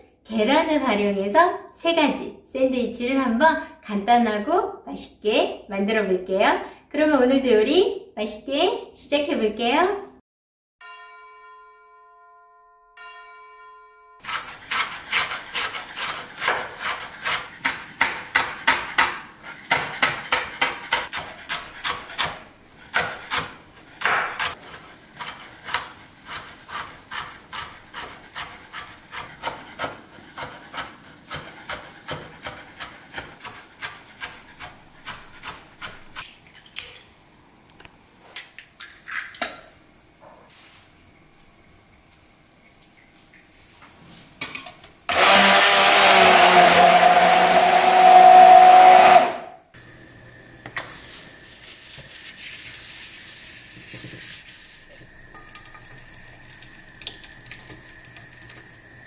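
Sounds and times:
chime of steady tones: 10.8s - 14.2s
knife chopping on cutting board: 14.2s - 36.3s.

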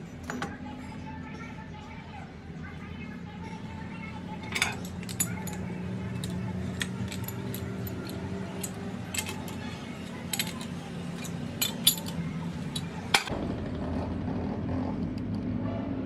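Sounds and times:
workshop machine hum: 2.1s - 16.0s
metal parts clinking: 4.4s - 13.3s.

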